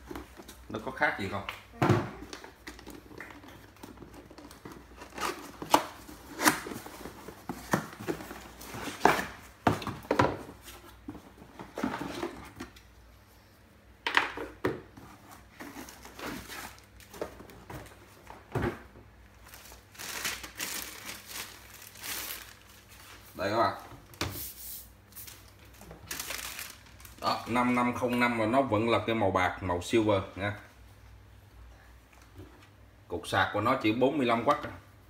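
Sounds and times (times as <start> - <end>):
cardboard and plastic rustling: 0.0 - 12.8, 14.4 - 24.5, 25.2 - 28.3.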